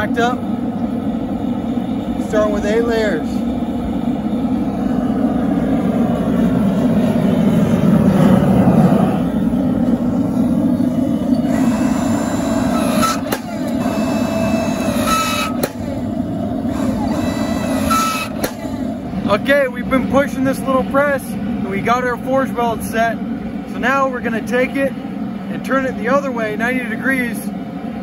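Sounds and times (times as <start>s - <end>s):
low mechanical noise: 0.0s - 28.0s
forging press squeezing steel: 11.3s - 19.0s.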